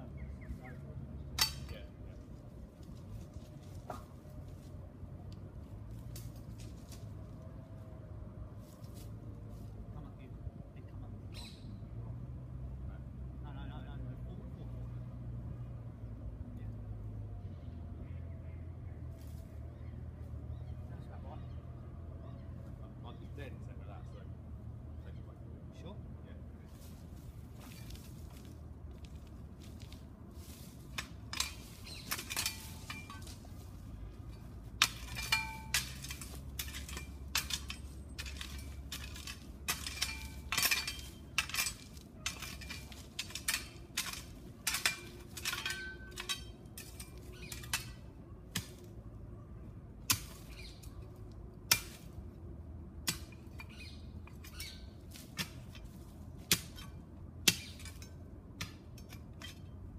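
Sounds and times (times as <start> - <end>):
spade clinking on stones: 1.4 - 1.8, 30.9 - 48.8, 53.1 - 59.8.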